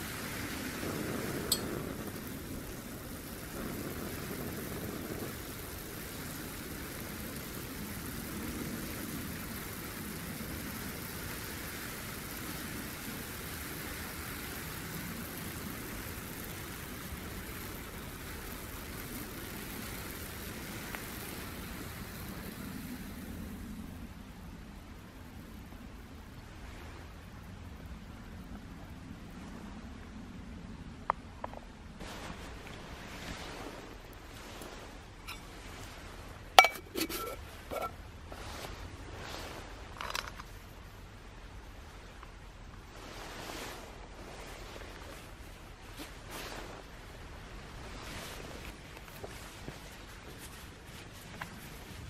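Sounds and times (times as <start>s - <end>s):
gas stove burner hiss: 0.0s - 25.8s.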